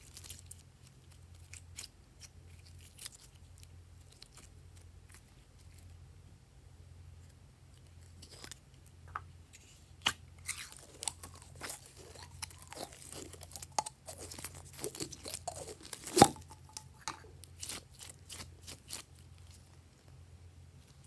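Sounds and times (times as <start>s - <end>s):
slime squelching and popping: 10.0s - 19.1s.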